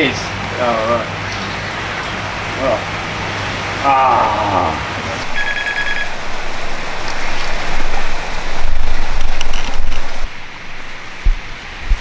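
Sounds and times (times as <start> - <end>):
low wind buffeting: 6.0 - 12.0
wind hiss on microphone: 6.2 - 12.0.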